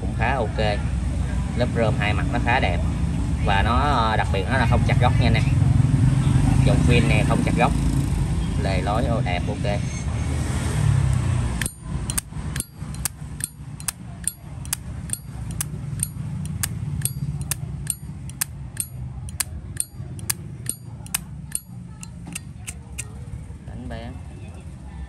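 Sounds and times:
lighter lid clicking open and shut: 11.6 - 23.1.

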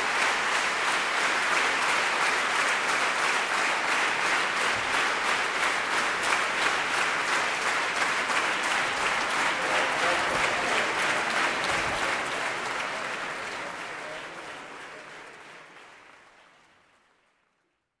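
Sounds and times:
audience applauding in rhythm: 0.0 - 18.0.

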